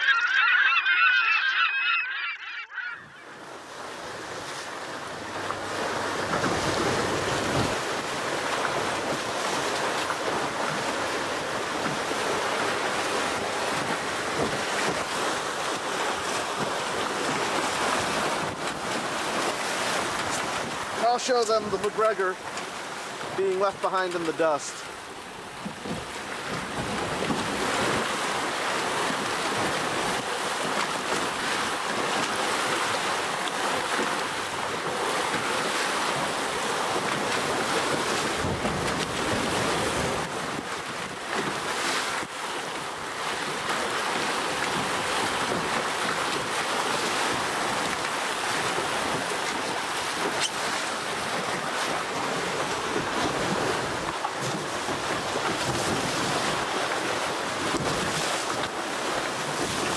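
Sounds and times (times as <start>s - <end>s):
water rushing past a hull: 0.0s - 59.9s
wind buffeting the microphone: 34.8s - 58.7s.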